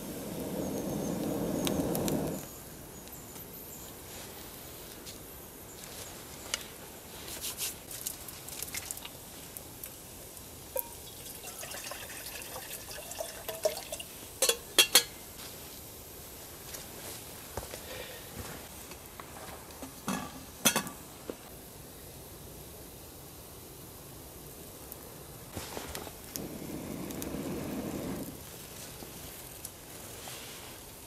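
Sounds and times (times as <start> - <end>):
man blowing on embers: 0.0 - 2.8, 24.4 - 31.0
faint fire crackles: 0.0 - 31.0.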